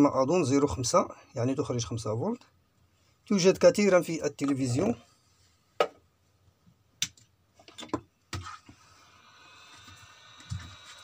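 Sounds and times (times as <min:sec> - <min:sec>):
clicks and knocks on a workbench: 0:07.0 - 0:08.5.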